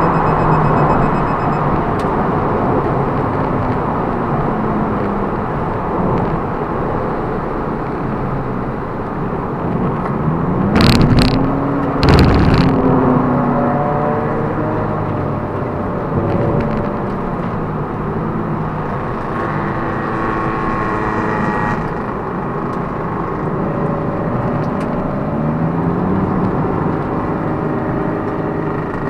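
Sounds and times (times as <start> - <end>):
road and tyre noise: 0.0 - 29.0
car engine running: 8.6 - 13.4.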